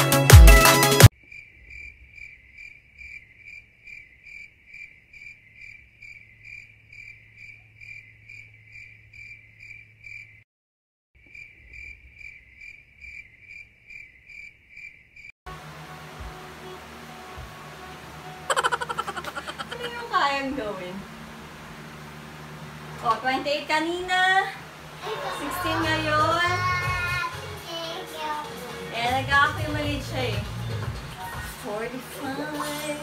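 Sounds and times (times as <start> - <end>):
cricket chirping: 1.2 - 10.4, 11.2 - 15.3
low hum: 15.5 - 25.0.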